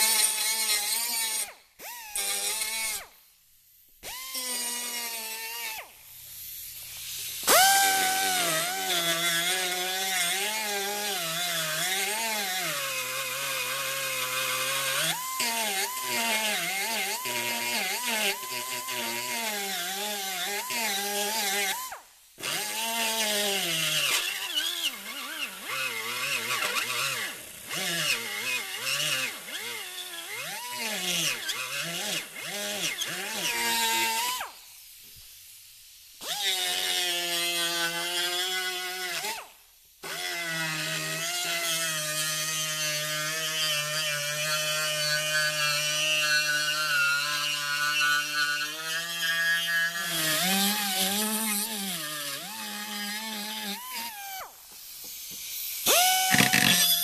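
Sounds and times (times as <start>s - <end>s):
die grinder whining on metal: 7.0s - 34.4s, 41.0s - 57.0s.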